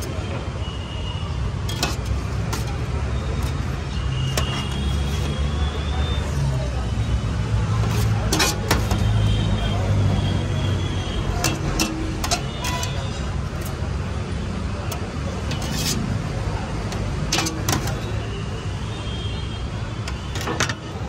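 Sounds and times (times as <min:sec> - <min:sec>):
low hum of road traffic: 0:00.0 - 0:21.0
metal spatulas clinking on steel tray: 0:01.7 - 0:02.8, 0:07.8 - 0:09.0, 0:11.4 - 0:13.8, 0:14.9 - 0:16.1, 0:16.9 - 0:18.2.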